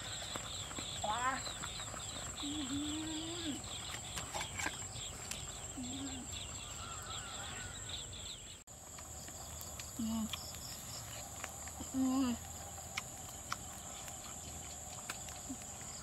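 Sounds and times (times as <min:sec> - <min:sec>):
low animal calls: 0:00.0 - 0:08.3
insect drone: 0:00.0 - 0:16.0
rapid insect chirping: 0:00.0 - 0:16.0.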